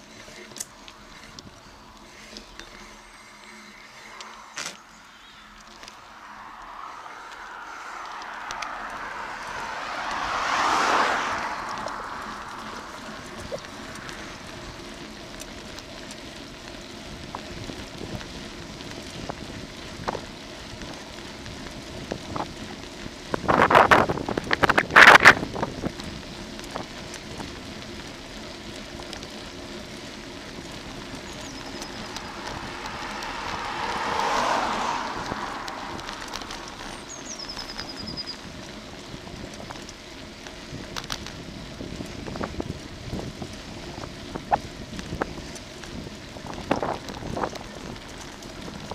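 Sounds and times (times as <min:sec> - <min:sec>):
bicycle tyre and road noise: 0:00.0 - 0:48.9
wind on microphone: 0:17.2 - 0:27.5, 0:30.8 - 0:39.8, 0:40.7 - 0:48.9.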